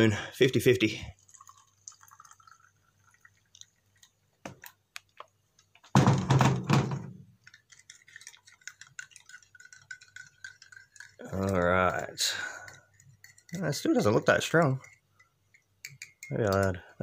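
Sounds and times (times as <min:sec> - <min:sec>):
water poured into a mug: 0:00.0 - 0:04.7, 0:07.4 - 0:15.0
spoon stirring in a mug: 0:01.2 - 0:04.1, 0:07.4 - 0:17.0.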